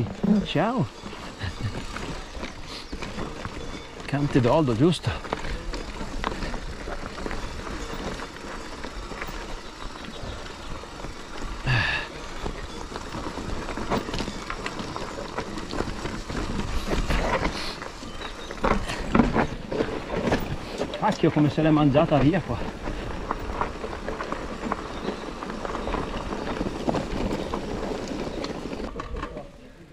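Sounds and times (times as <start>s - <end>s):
bike rattling: 0.0s - 29.9s
tyres crunching on loose stones: 0.0s - 29.9s.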